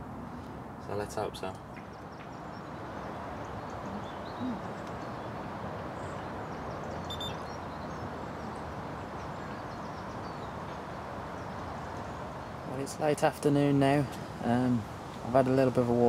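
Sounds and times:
rushing outdoor background noise: 0:00.0 - 0:16.0
faint high chirp: 0:06.8 - 0:08.6.

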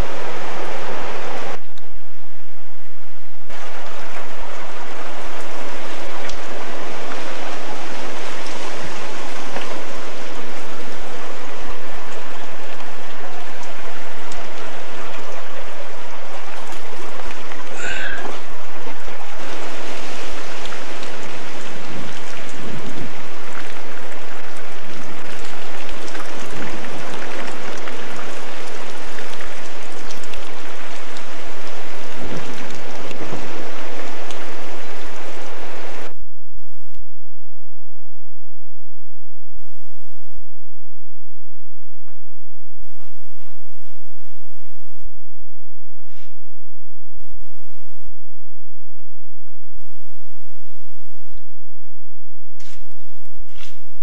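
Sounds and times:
storm rain and floodwater rushing: 0:00.0 - 0:36.2.

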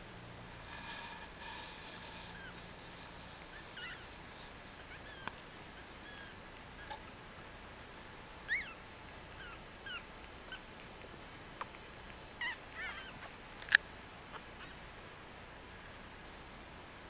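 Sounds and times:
puppies squeaking and whimpering: 0:02.0 - 0:07.2, 0:08.4 - 0:11.2, 0:12.3 - 0:13.4, 0:14.3 - 0:14.9.

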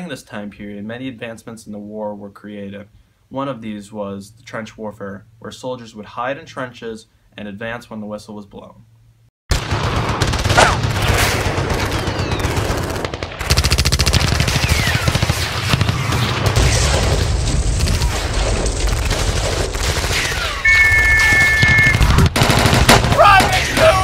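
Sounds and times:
machine-gun and rifle fire: 0:09.5 - 0:24.0
whistle blown: 0:20.6 - 0:22.1.

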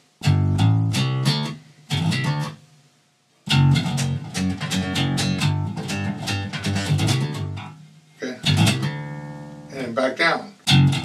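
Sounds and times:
electric bass plucked notes: 0:00.0 - 0:02.6, 0:03.5 - 0:11.0.

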